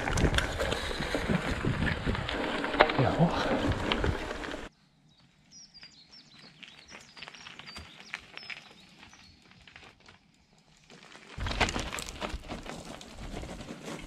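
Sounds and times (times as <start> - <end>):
bike tyres crunching on dirt: 0.0 - 14.0
small birds chirping: 5.0 - 9.6.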